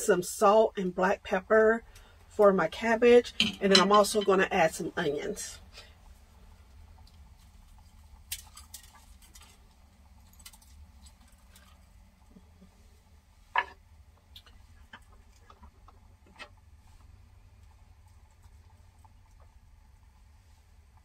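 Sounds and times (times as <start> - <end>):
low steady hum: 0.0 - 21.0
kitchenware clicks and taps: 3.4 - 4.3.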